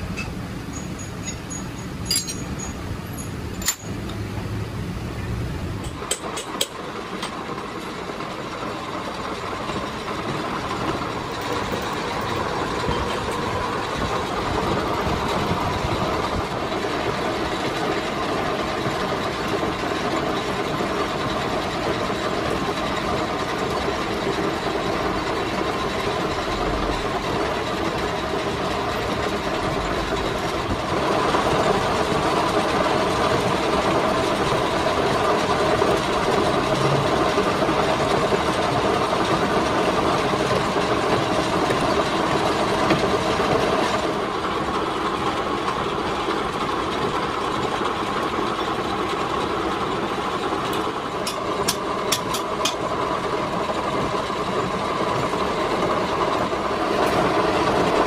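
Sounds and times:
sharp metal clinks: 0.2 - 4.1.

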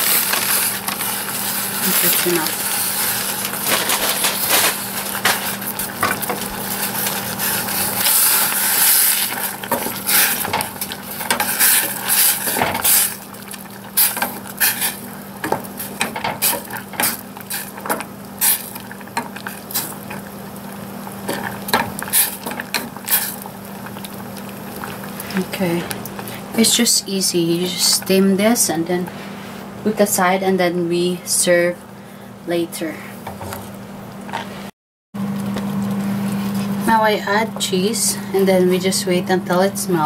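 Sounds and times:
spinach sizzling in a saucepan: 0.0 - 28.7.

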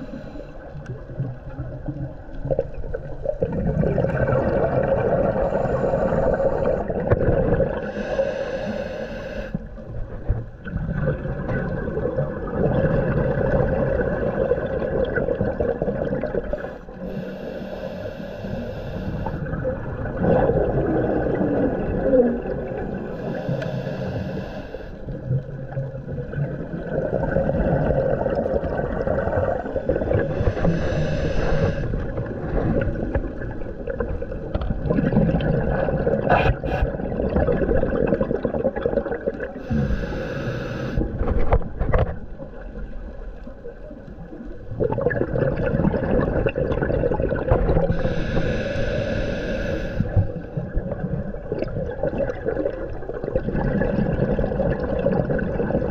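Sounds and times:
exhaled bubbles hissing: 0.0 - 41.6, 42.2 - 55.9
underwater rumbling and gurgling: 0.0 - 55.9.

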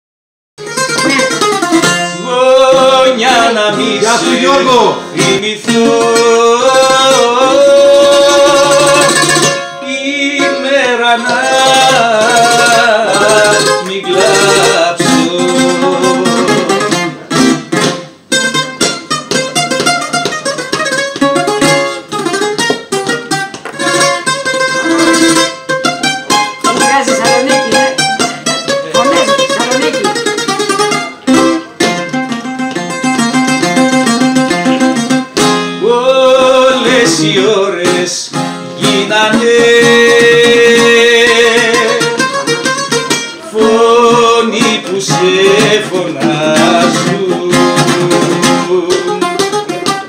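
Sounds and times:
bouzouki playing: 0.6 - 35.9, 37.8 - 50.0
man singing: 2.0 - 17.0, 35.8 - 49.6.

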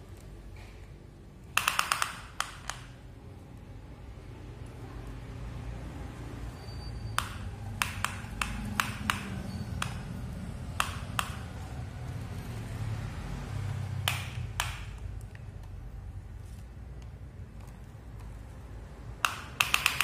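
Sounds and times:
plastic toy clicks and taps: 1.5 - 3.0, 7.2 - 10.1, 10.8 - 11.6, 14.0 - 15.8, 19.2 - 20.0.

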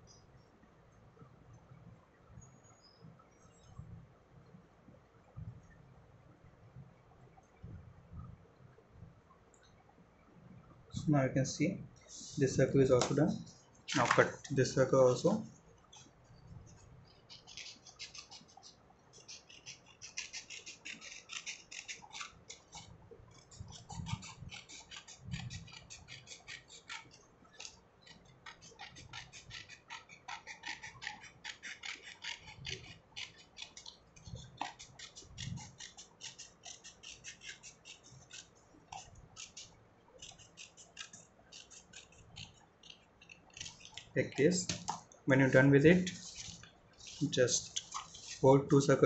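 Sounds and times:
scissors snipping paper: 19.2 - 45.0.

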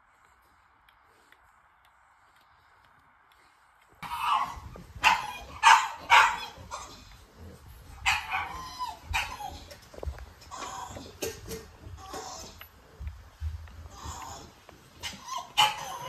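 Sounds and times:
puppies squealing: 4.0 - 12.7, 13.8 - 16.0.

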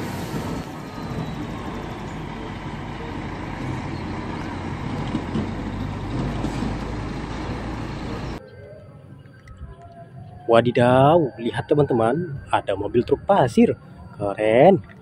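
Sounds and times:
truck diesel engine running: 0.0 - 8.4.

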